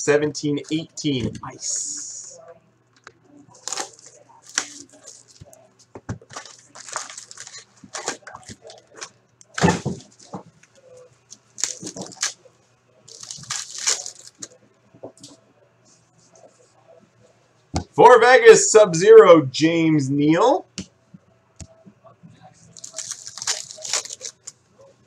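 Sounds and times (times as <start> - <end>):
foil pack tearing: 3.6 - 5.4, 6.3 - 8.8, 11.6 - 12.4, 13.1 - 14.5, 22.8 - 24.5
foil wrapper crinkling: 3.6 - 5.6, 6.3 - 9.0, 11.6 - 12.4, 13.1 - 14.6, 22.8 - 24.6.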